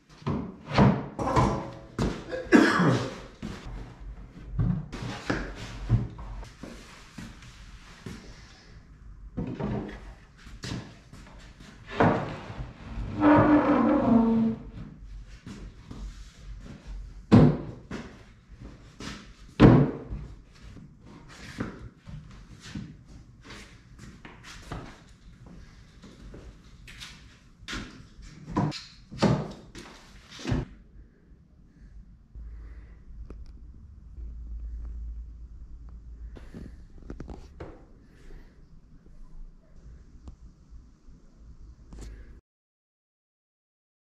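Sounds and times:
wood scraping: 11.9s - 14.6s.

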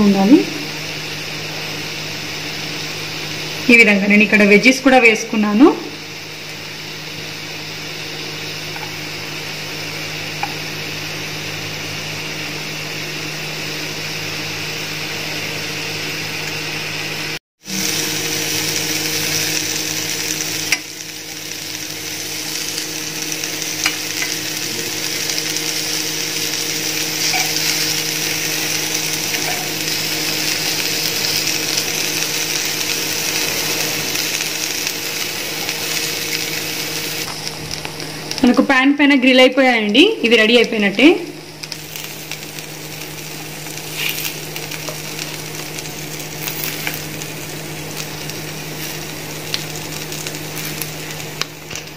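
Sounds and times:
food sizzling in oil: 0.0s - 51.9s
spatula scraping pan: 27.2s - 27.9s, 29.3s - 29.8s.

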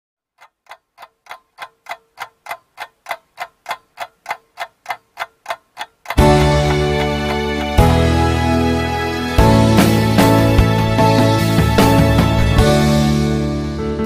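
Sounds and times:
clock ticking: 0.3s - 8.2s
music: 6.2s - 14.0s.

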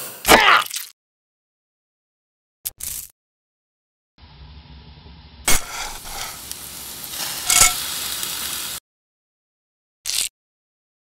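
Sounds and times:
food sizzling: 4.2s - 8.8s, 10.1s - 10.3s.

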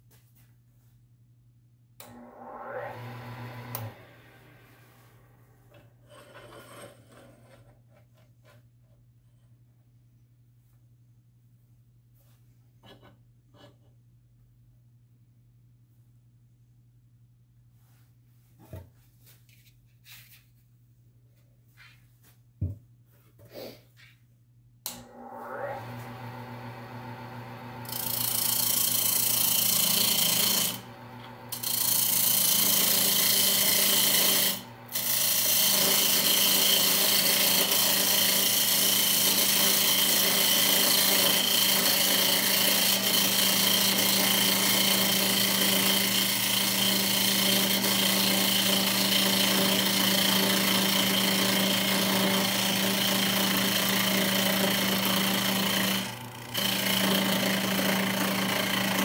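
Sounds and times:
lathe motor hum: 2.0s - 5.9s, 24.9s - 59.0s
turning tool scraping wood: 4.8s - 8.7s, 27.8s - 59.0s.

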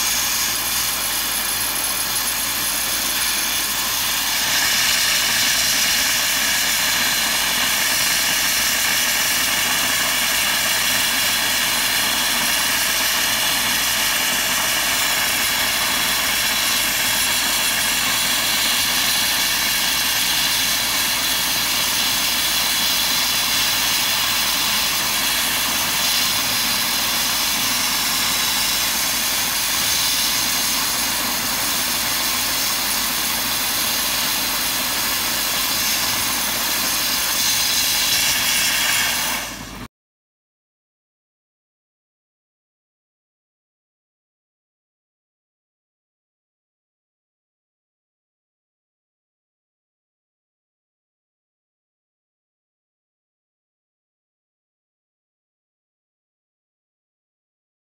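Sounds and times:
dry ice blasting hiss: 0.0s - 39.9s.

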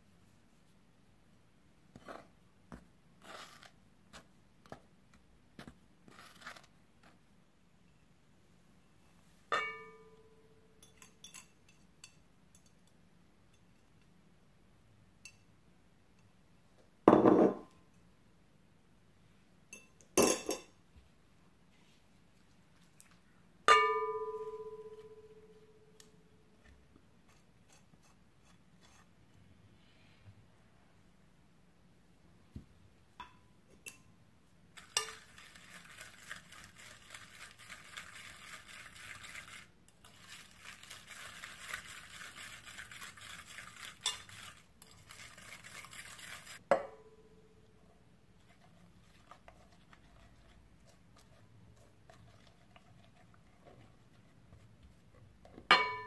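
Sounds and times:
spoon scraping in glass bowl: 34.8s - 46.6s.

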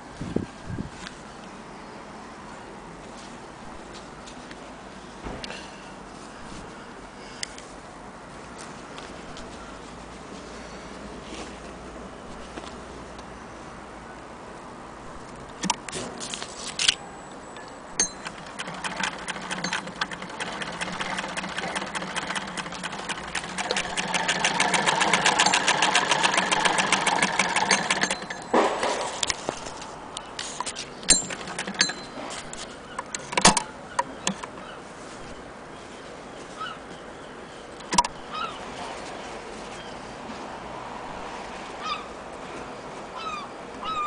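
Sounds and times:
sewing machine clicking: 18.0s - 28.5s, 31.1s - 32.1s.

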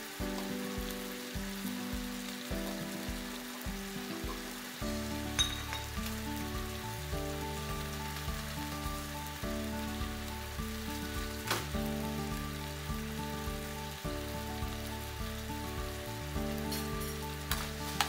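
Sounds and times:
background music of held chords: 0.0s - 18.0s
meat and onion sizzling in a pan: 0.0s - 18.0s.

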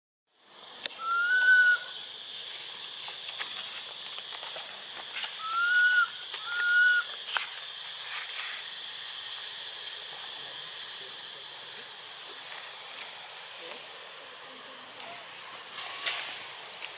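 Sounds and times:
hissing insect drone: 0.4s - 16.9s
short rising whistled calls: 0.9s - 2.1s, 5.4s - 7.1s.

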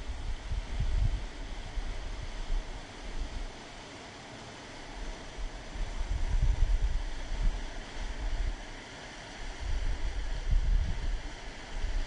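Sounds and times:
wind buffeting microphone: 0.0s - 3.5s, 5.8s - 8.6s, 9.5s - 12.0s.

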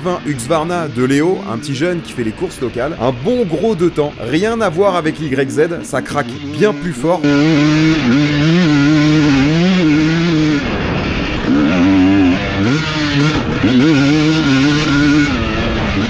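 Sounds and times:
motocross bike engine revving: 0.0s - 16.0s.

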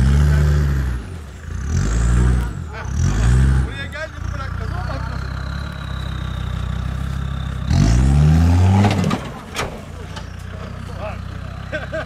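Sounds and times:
diesel engine revving: 0.0s - 12.0s
engine knocks: 3.7s - 12.0s.

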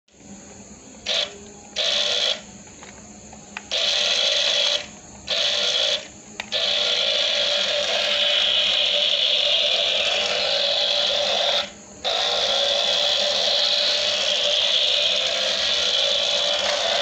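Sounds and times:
toy car electric motor whirring: 1.0s - 3.0s, 3.6s - 17.0s.

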